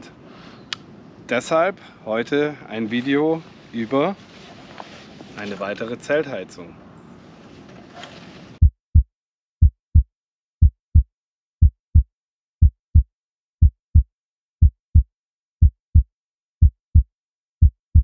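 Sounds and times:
heartbeat thumps: 0:08.6 - 0:18.0.

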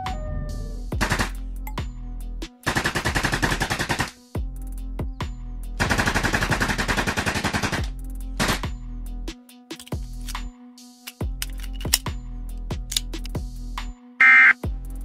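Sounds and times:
automatic gunfire bursts: 0:02.7 - 0:04.1.

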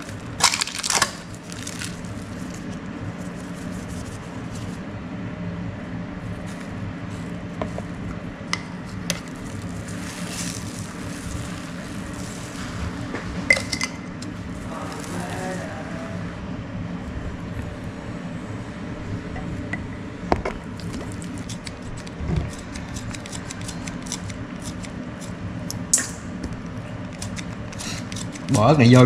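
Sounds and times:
steady low hum: 0:00.0 - 0:29.0
spice shakers clicking and knocking: 0:27.1 - 0:28.5.

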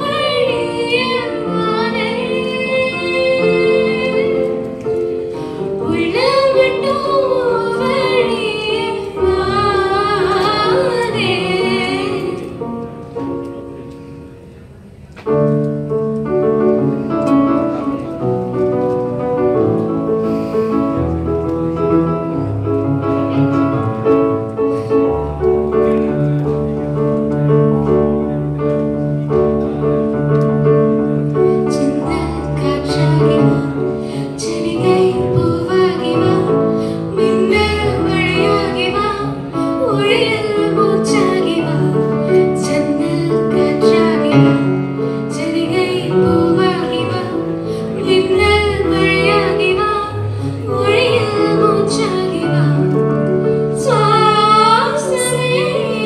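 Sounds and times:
woman singing with vibrato: 0:00.0 - 0:04.6, 0:05.8 - 0:12.6, 0:31.7 - 0:52.9, 0:53.6 - 0:56.0.

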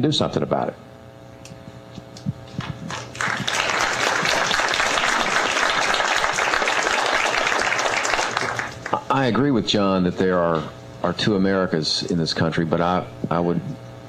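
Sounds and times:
audience applauding: 0:02.6 - 0:09.0.

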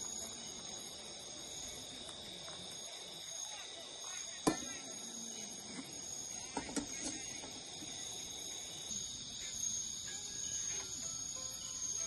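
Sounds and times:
high-pitched insect chirring: 0:03.0 - 0:12.0.

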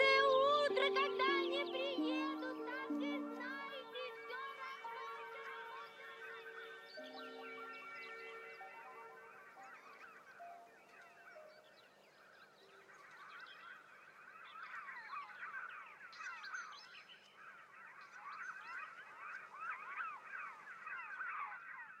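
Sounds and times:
orchestral music: 0:00.0 - 0:10.6
birds chirping: 0:00.0 - 0:22.0.

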